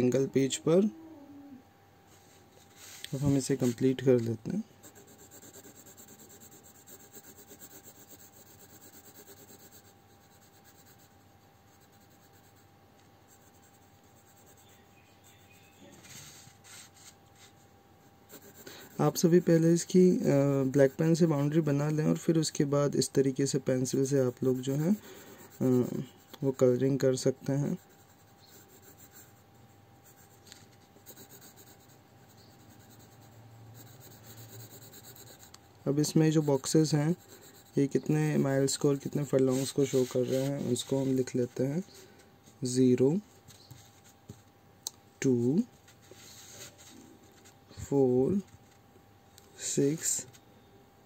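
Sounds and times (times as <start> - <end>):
pencil scratching on paper: 4.8 - 17.6, 18.3 - 22.2, 23.8 - 41.9.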